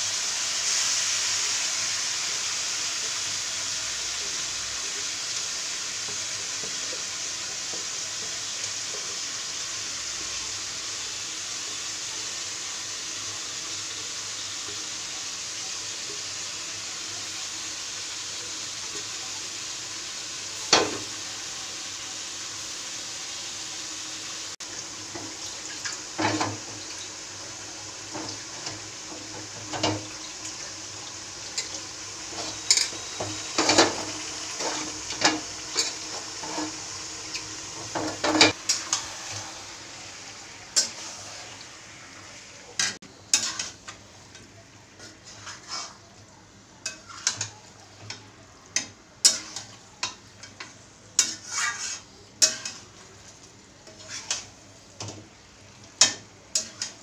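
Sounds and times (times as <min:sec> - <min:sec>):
chicken sizzling in oil: 0:00.0 - 0:57.0
metal spatula scraping a pan: 0:31.6 - 0:39.7, 0:40.7 - 0:41.6, 0:42.8 - 0:44.0, 0:45.0 - 0:46.1, 0:46.8 - 0:48.2, 0:48.8 - 0:52.9, 0:53.8 - 0:55.1, 0:56.0 - 0:57.0.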